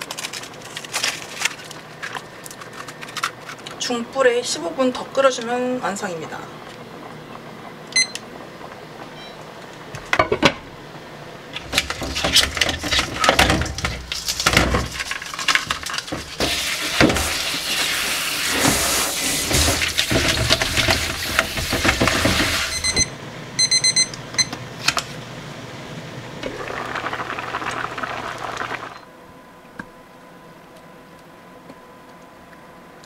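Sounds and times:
short electronic beeps: 0:08.0 - 0:08.2
fruit clattering in colander: 0:11.6 - 0:17.4
tap water running: 0:16.2 - 0:22.8, 0:26.4 - 0:29.0
stew simmering in pan: 0:26.4 - 0:29.0.

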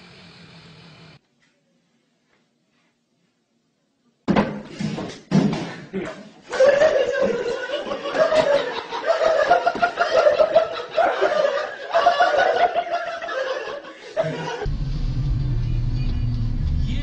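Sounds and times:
person chuckling: 0:05.5 - 0:14.7.

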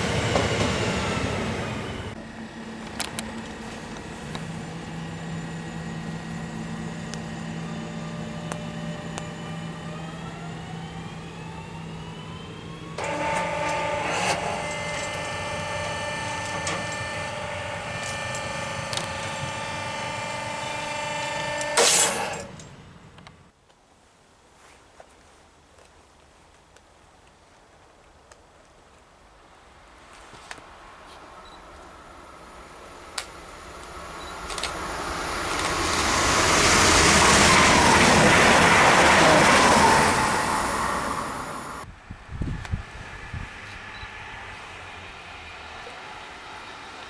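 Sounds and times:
train traction motors whining: 0:00.0 - 0:23.4, 0:32.0 - 0:41.9.

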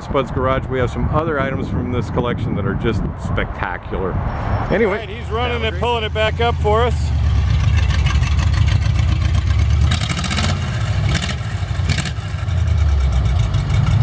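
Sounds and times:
tractor engine running: 0:05.0 - 0:14.0.

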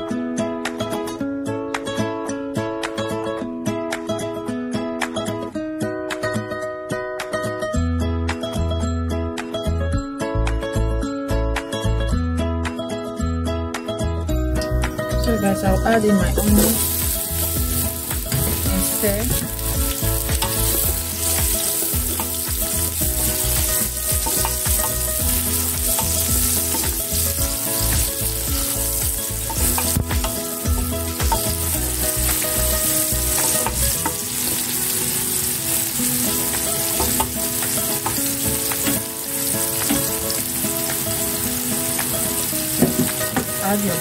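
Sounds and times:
onions sizzling in hot oil: 0:14.6 - 0:44.0.

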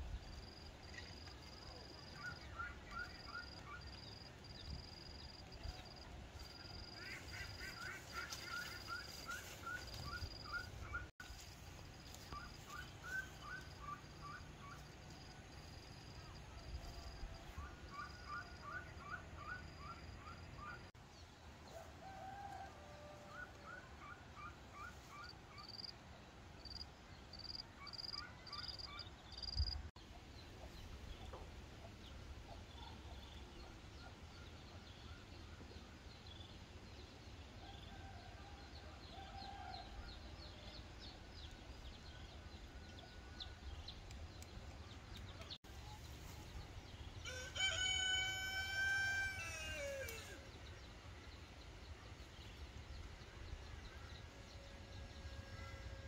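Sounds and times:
rooster crowing: 0:47.2 - 0:50.5.

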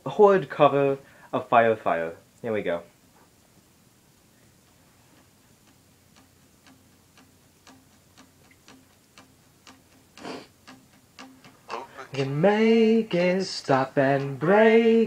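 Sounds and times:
tempo click ticking: 0:04.1 - 0:15.0.

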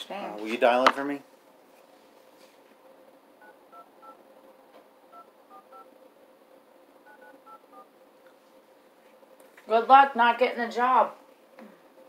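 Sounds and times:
telephone keypad tones: 0:05.1 - 0:05.9, 0:07.1 - 0:07.9.

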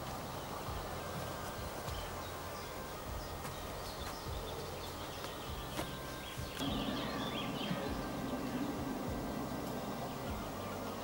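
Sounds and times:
outdoor background noise: 0:00.0 - 0:11.0
faint bird chirps: 0:00.2 - 0:11.0.

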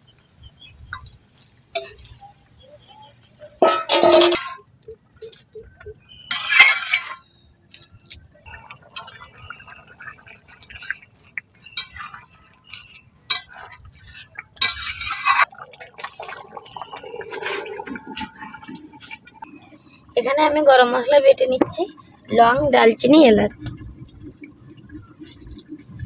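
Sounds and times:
metal spatula scraping a wok: 0:03.6 - 0:04.6, 0:06.3 - 0:07.3, 0:11.8 - 0:15.5
gravy sloshing: 0:08.5 - 0:19.7.

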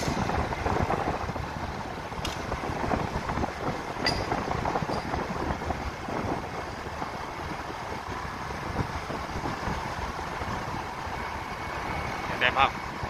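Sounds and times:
vehicle rumble on road: 0:00.0 - 0:13.0
wind buffeting microphone: 0:00.0 - 0:13.0.

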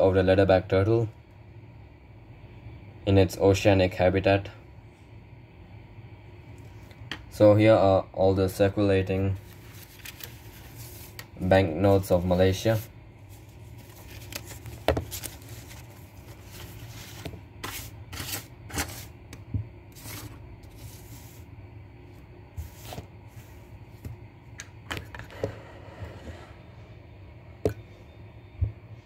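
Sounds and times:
steady low hum: 0:00.0 - 0:29.0
banknotes rustling and crinkling: 0:09.2 - 0:19.1, 0:20.0 - 0:21.4.

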